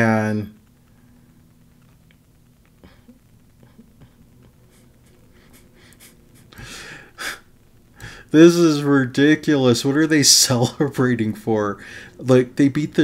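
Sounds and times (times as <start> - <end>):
faint steady hum: 0.0 - 13.0
small clicks: 0.6 - 5.2
man's wheezy laugh: 2.9 - 7.4.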